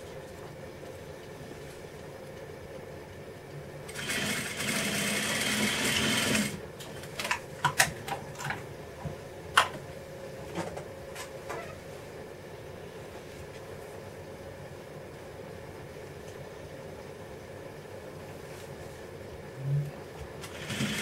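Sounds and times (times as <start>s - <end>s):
steady low hum: 0.0s - 21.0s
sewing machine stitching: 3.9s - 6.6s, 20.4s - 21.0s.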